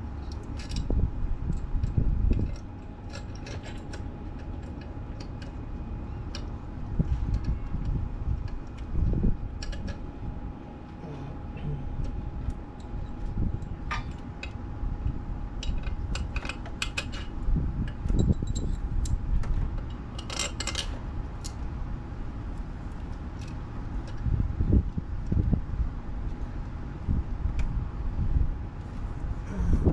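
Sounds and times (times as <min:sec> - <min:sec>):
metal parts clinking: 0:00.4 - 0:00.9, 0:01.5 - 0:05.6, 0:18.1 - 0:19.2, 0:19.8 - 0:21.6
low rumble: 0:05.8 - 0:16.5, 0:21.0 - 0:29.9.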